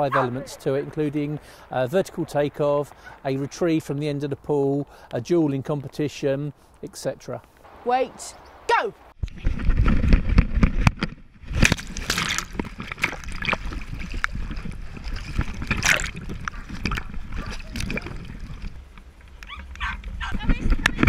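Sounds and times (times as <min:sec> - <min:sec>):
wind rumble: 0:07.7 - 0:21.0
water sloshing and splashing: 0:09.4 - 0:21.0.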